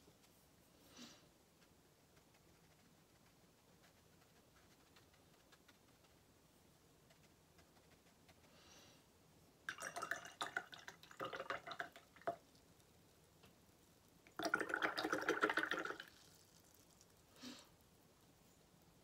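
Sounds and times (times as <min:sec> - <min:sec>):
paintbrush splashing in water jar: 0:09.7 - 0:12.6, 0:14.3 - 0:17.2.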